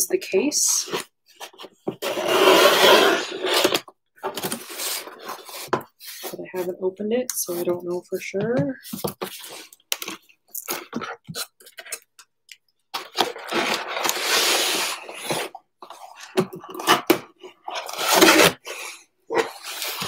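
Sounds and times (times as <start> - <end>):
cardboard scraping against cardboard: 0.8 - 6.4, 13.0 - 20.0.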